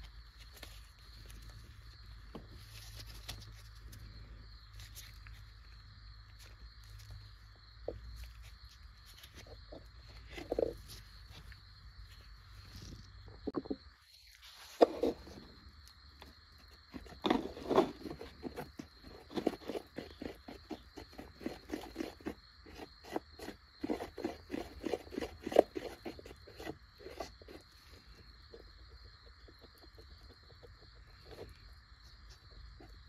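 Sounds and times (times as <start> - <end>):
stir stick scraping paste on plastic: 16.9 - 28.1.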